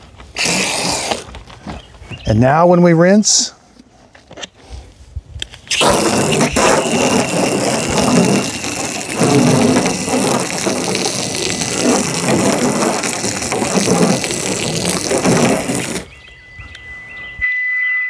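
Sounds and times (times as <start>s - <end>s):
water spraying against car: 0.3s - 1.3s, 5.7s - 16.1s.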